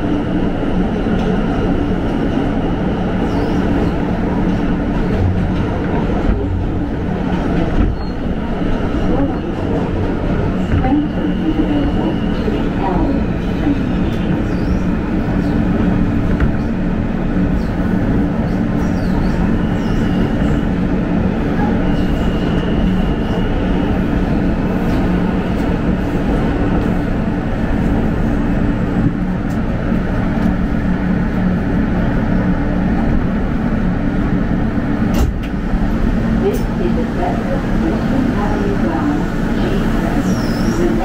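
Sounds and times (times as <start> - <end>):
subway train rumbling: 0.0 - 41.0.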